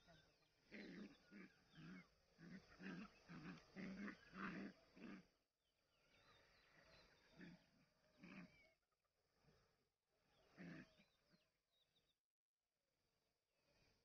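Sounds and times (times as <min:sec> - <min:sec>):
dogs growling and yipping: 0:00.7 - 0:05.3, 0:06.8 - 0:08.7, 0:10.5 - 0:11.0.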